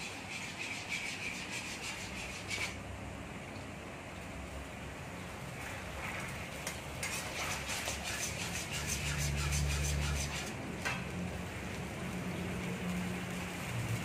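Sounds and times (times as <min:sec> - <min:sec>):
metal ladle scraping a wok: 0:07.0 - 0:11.0.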